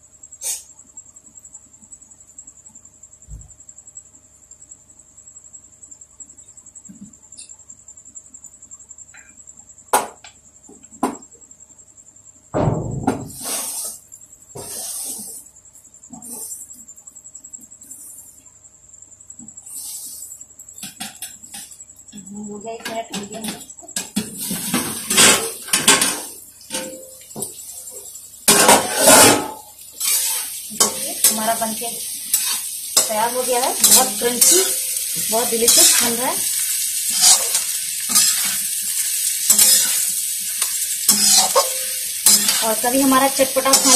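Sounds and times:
metal spatula scraping in wok: 13.3s - 14.0s, 14.6s - 15.4s, 28.5s - 43.9s.

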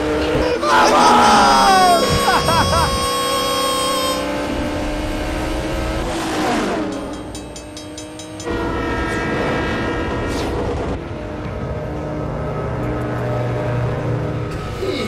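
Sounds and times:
racing car engines: 0.0s - 15.0s
locomotive horn chord: 1.6s - 4.6s, 6.7s - 11.0s.

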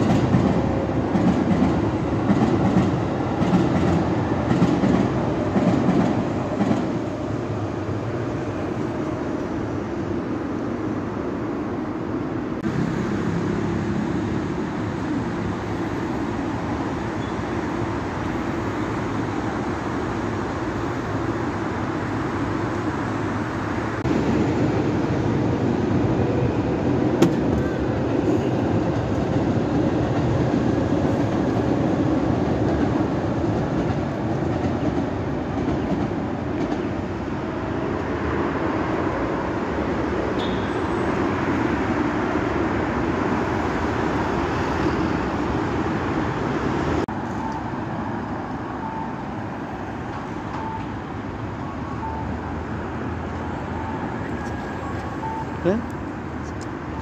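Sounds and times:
road traffic rumble: 0.0s - 57.0s
train passing on viaduct: 0.0s - 57.0s
faint short beeps: 50.5s - 51.0s.

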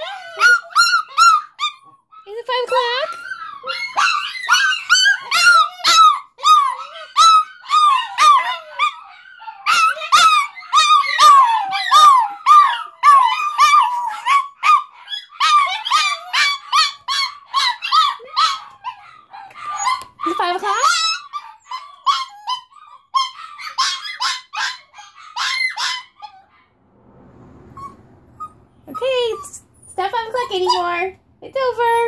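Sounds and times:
dogs howling: 0.0s - 26.5s.

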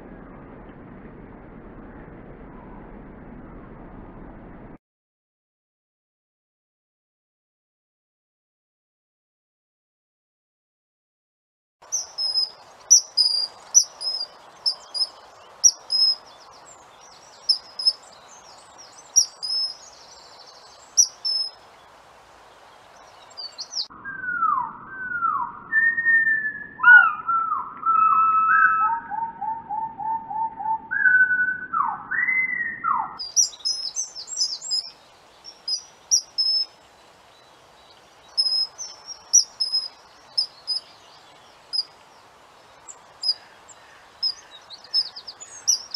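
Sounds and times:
low rumble: 0.0s - 4.8s
lower falling bird notes: 11.8s - 45.9s.

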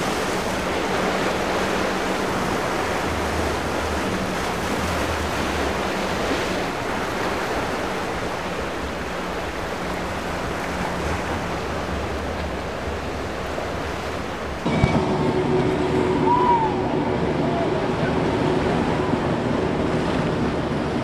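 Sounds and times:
distant outboard motors droning: 0.0s - 21.0s
waves breaking: 0.0s - 21.0s
wind on microphone: 14.6s - 21.0s.

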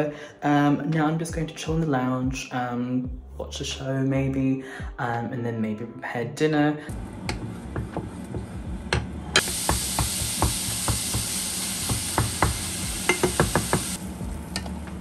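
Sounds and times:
spatula tapping and scraping pan: 7.2s - 14.0s
meat sizzling in a frying pan: 9.4s - 14.1s.

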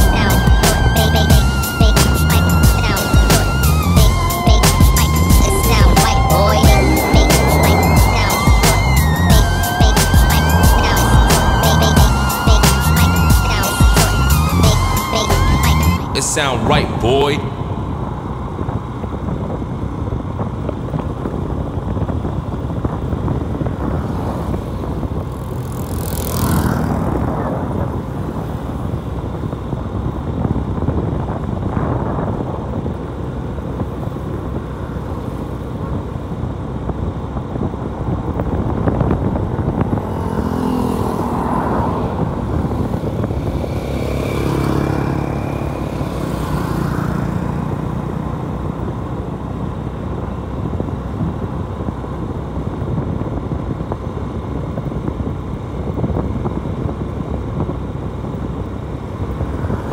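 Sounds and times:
motorcycle engine running: 0.0s - 16.0s, 17.6s - 59.9s
wind and road noise: 0.0s - 59.9s.

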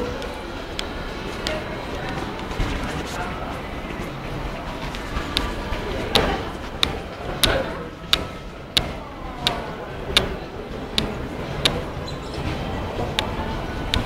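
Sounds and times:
rhythmic sharp clicks: 0.0s - 3.2s, 4.7s - 12.0s, 13.0s - 14.0s
steady background noise: 0.0s - 14.0s.

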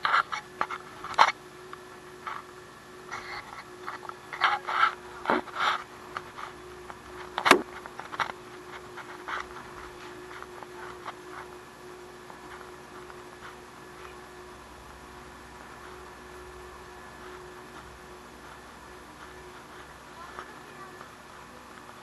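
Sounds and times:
steady vehicle hum: 0.0s - 22.0s.

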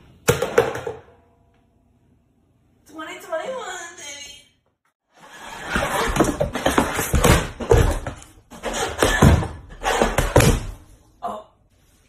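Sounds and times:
stomping and falling on wooden floor: 5.6s - 10.8s.

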